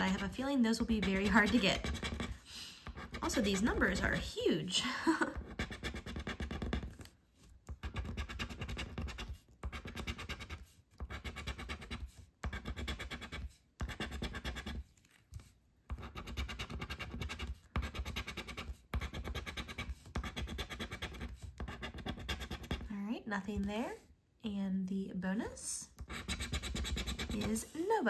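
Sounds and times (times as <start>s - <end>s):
coin scraping a scratch card: 0.0s - 4.2s, 5.4s - 15.2s, 15.9s - 22.9s, 26.0s - 27.9s.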